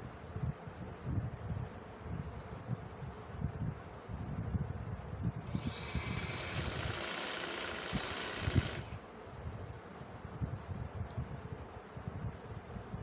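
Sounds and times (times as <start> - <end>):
sewing machine motor whine: 5.5 - 9.0.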